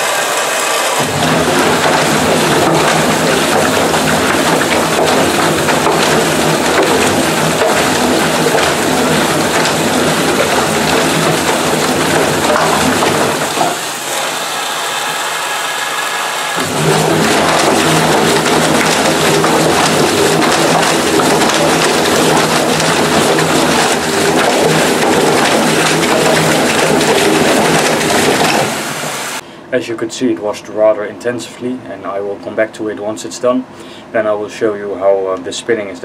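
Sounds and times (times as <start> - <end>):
water sloshing in drum: 0.0 - 15.3, 16.6 - 29.4
washing machine motor hum: 0.0 - 29.4.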